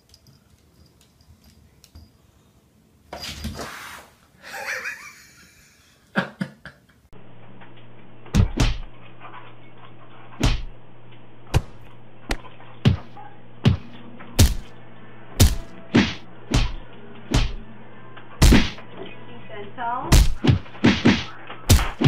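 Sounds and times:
steady low hum: 0:05.4 - 0:22.0.

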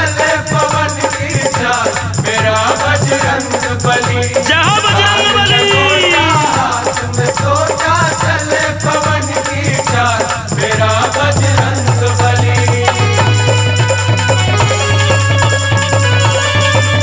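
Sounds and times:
shaker rattle and percussion: 0:00.0 - 0:17.0
gliding melodic lead line: 0:13.2 - 0:17.0.

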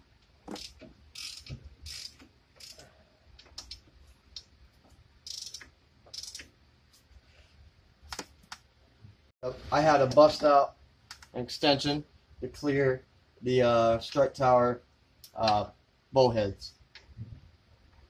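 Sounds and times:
ratchet clicking: 0:00.5 - 0:02.8, 0:05.3 - 0:06.5.

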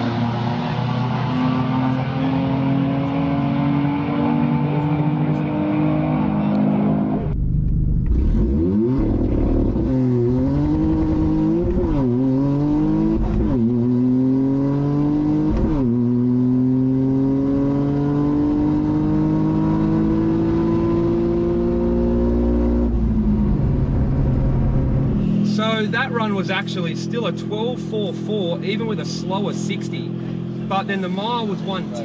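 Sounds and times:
car engine at full throttle: 0:00.0 - 0:32.0.

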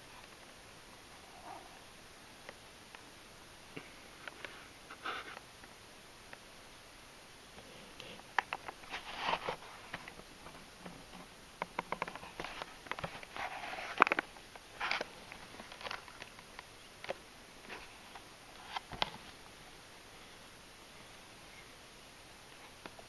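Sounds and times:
plastic clicks and crinkling: 0:08.3 - 0:19.4.

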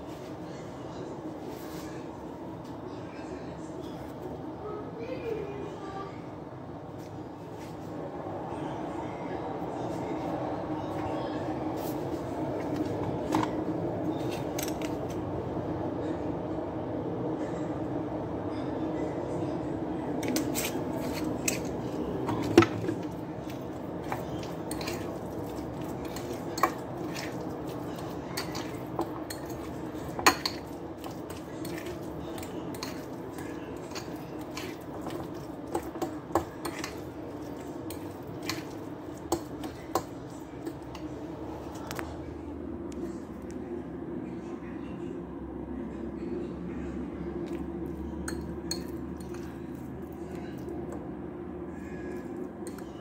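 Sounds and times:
steady low hum: 0:00.0 - 0:53.0
metal utensil clinking on glass bowl: 0:24.0 - 0:40.8, 0:48.3 - 0:49.6.

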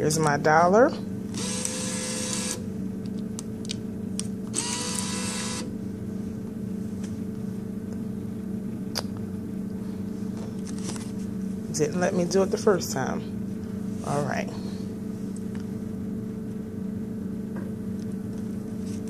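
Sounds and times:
steady hum: 0:00.0 - 0:19.0
bill acceptor motor whirring: 0:01.3 - 0:02.7, 0:04.5 - 0:05.7.

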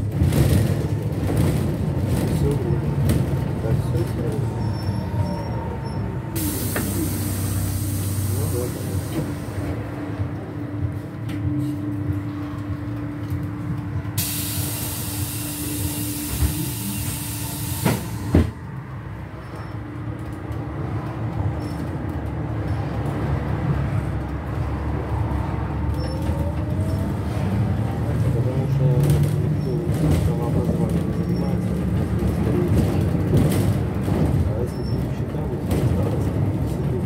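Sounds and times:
trolleybus humming: 0:00.0 - 0:37.0
trolleybus running and rolling: 0:00.0 - 0:37.0
compressed air hiss of doors: 0:06.4 - 0:09.0, 0:14.2 - 0:18.5.

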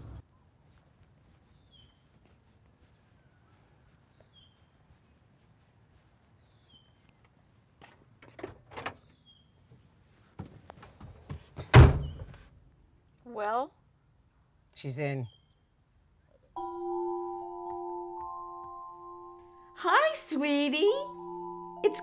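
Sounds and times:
bird chirping: 0:00.0 - 0:02.2, 0:03.0 - 0:07.3, 0:08.5 - 0:09.6, 0:12.0 - 0:12.4, 0:14.3 - 0:22.0.

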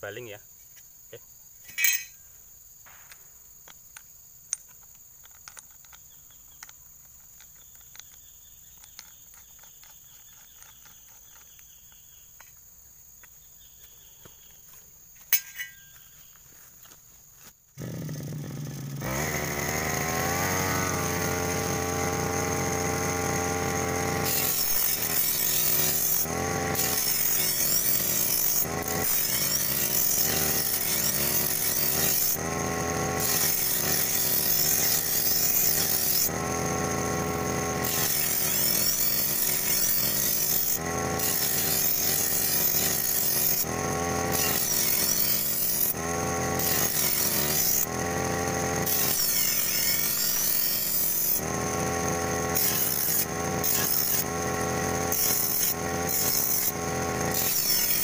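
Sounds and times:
brush cutter engine running: 0:17.8 - 0:58.0
loud metal grinding: 0:17.8 - 0:58.0.

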